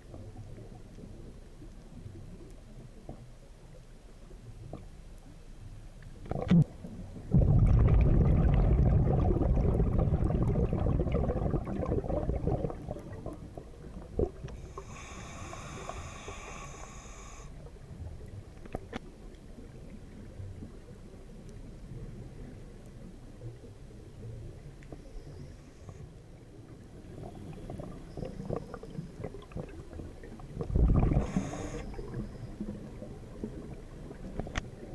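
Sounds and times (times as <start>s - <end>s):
exhaled bubbles rumbling: 6.2s - 14.8s, 26.6s - 34.9s
regulator hissing inhalation: 14.6s - 17.6s, 31.1s - 32.0s.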